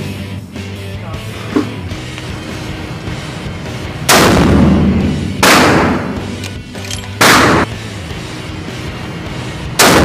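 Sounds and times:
background music: 0.0 - 10.0
rifle shots ringing indoors: 4.0 - 7.7, 9.8 - 10.0.

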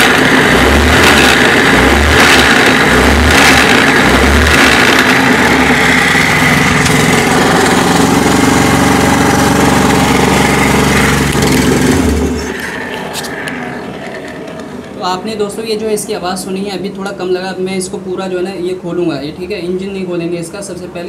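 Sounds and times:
scooter engine revving and idling: 0.0 - 13.8.

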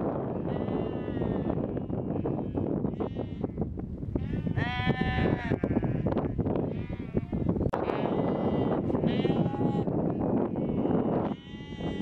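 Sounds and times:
sheep bleating: 0.3 - 3.5, 4.2 - 12.0.

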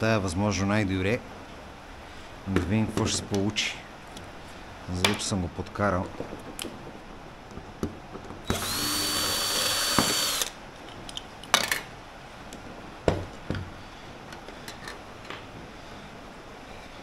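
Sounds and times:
sharp knocks and clicks: 5.0 - 8.6
power tool whine: 8.4 - 10.6.

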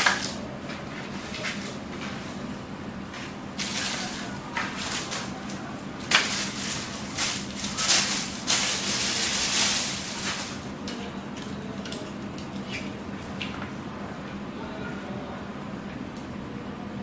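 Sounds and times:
plastic bag crinkling and rustling: 6.1 - 10.7.

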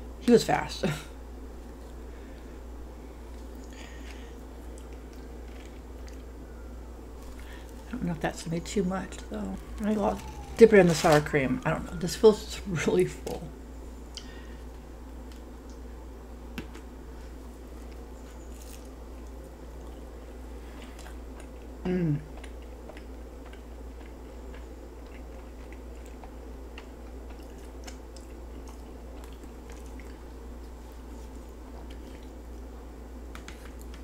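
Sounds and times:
low room hum: 0.0 - 34.0
person chewing close up: 3.2 - 6.4, 17.8 - 32.8.

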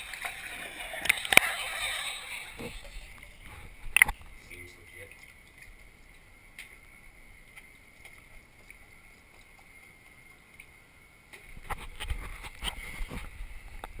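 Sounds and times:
bathwater lapping: 0.0 - 9.7
water splashing and sloshing: 0.0 - 14.0.

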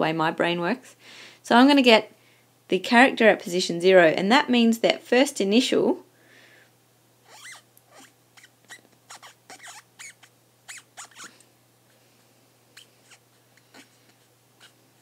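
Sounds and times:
stylus scratching on tablet: 9.1 - 11.3.

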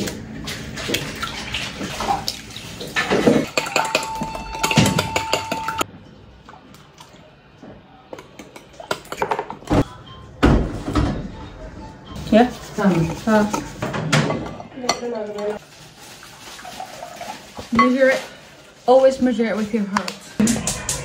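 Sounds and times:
utensils clinking on glass bowl: 3.0 - 5.8.

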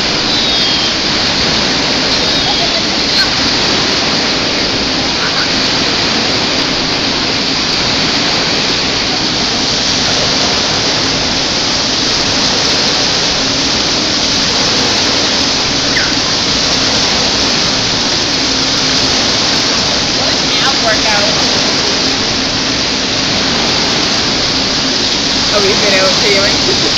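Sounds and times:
waves breaking and foaming: 0.0 - 26.9.

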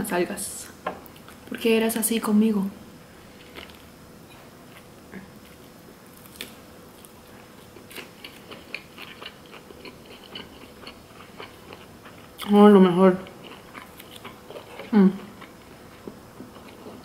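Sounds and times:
person chewing food: 3.4 - 12.5, 13.2 - 17.0.

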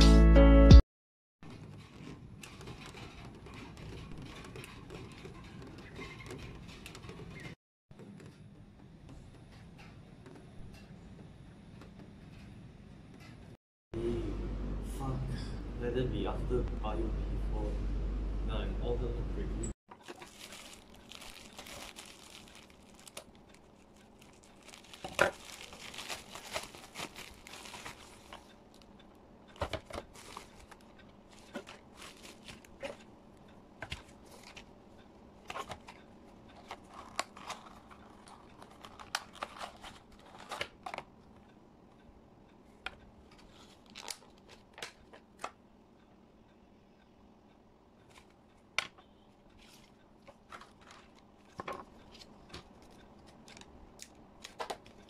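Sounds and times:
plastic crinkling and tearing: 19.9 - 28.8, 29.7 - 33.0, 36.6 - 41.0, 43.4 - 45.1
light clicks and taps of packaging: 19.9 - 28.9, 29.5 - 33.1, 35.4 - 41.4, 49.6 - 55.0
scissors cutting plastic bag: 20.0 - 28.9, 36.6 - 41.0.

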